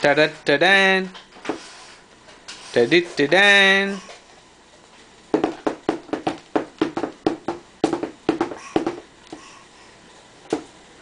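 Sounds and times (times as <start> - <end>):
baby slapping plastic tray: 5.3 - 9.4.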